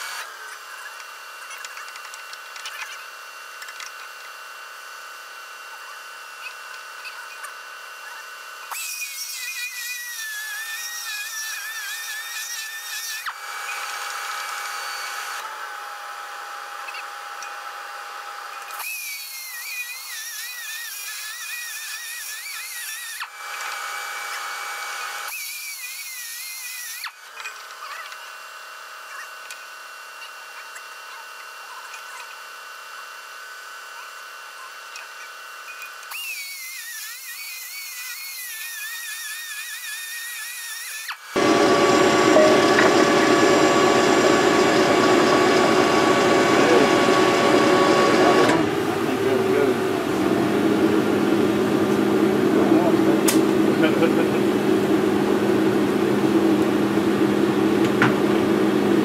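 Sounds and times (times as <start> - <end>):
air die grinder whining: 6.0 - 27.8, 35.7 - 59.0
steady hum: 41.4 - 59.0.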